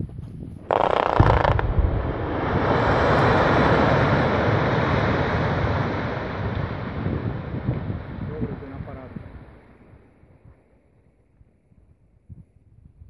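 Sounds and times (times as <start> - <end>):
rumble of collapsing rock: 0.6 - 4.0
quarry blast bang: 1.0 - 4.6.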